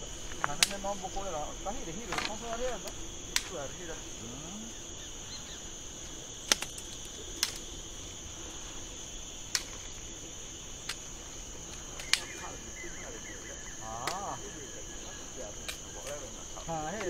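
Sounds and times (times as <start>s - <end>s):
insects chirring: 0.0s - 17.0s
sharp cracks: 0.2s - 4.0s, 5.9s - 8.5s, 9.4s - 12.7s, 13.9s - 14.5s, 15.6s - 16.3s.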